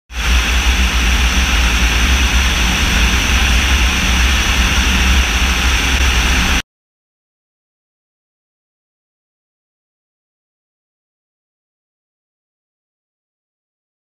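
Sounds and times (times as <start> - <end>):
propeller engine drone: 0.0 - 6.6
rushing airflow: 0.1 - 6.6.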